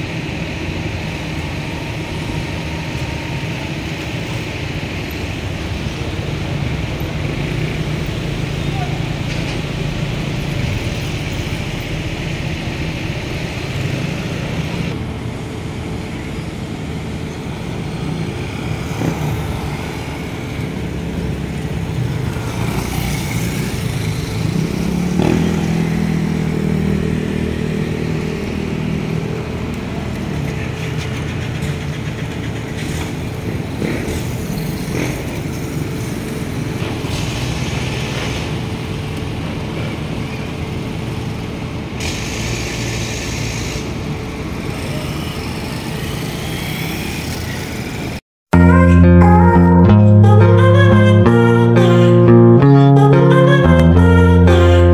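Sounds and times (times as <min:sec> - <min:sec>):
small motorcycle engines passing: 0:00.0 - 0:15.0, 0:17.5 - 0:41.7, 0:43.8 - 0:48.2
steady traffic rumble: 0:00.0 - 0:54.9.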